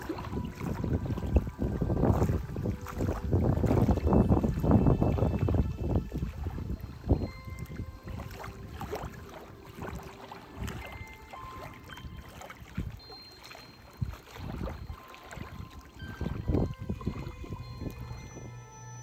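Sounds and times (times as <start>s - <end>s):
small waves lapping: 0.0s - 19.0s.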